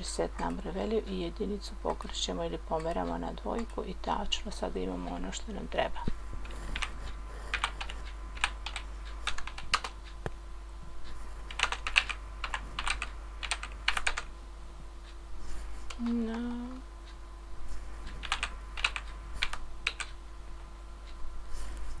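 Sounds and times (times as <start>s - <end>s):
computer keyboard typing: 6.4s - 10.0s, 11.5s - 14.3s, 18.1s - 20.2s.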